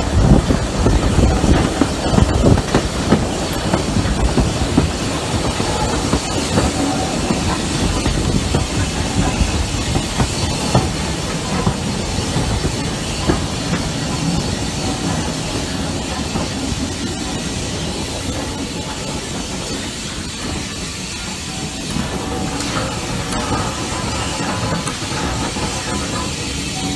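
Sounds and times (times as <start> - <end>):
steam hissing: 0.0 - 26.9
train wheels clattering over rails: 0.0 - 26.9.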